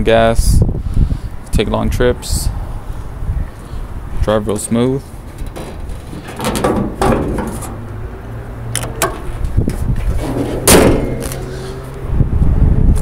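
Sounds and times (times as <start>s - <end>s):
prop rod knocks and clicks: 5.3s - 7.9s, 8.7s - 11.4s
car hood slamming shut: 5.5s - 7.8s, 10.3s - 11.5s.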